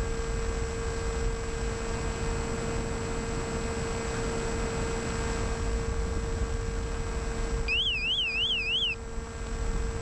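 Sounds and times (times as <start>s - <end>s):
electric model plane motor: 7.7s - 9.0s
electronic warbling tone: 7.7s - 9.0s.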